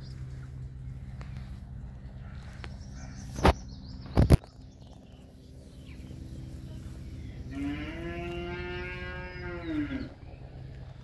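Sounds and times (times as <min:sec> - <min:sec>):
long animal call: 0:07.4 - 0:10.3.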